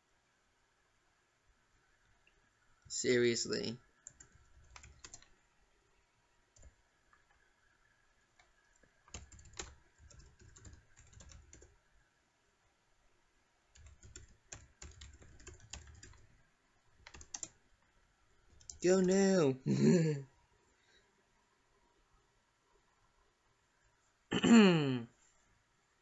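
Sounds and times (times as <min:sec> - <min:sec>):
keyboard typing: 0:04.0 - 0:05.4, 0:06.6 - 0:07.4, 0:08.3 - 0:11.8, 0:13.7 - 0:17.8, 0:18.4 - 0:19.2.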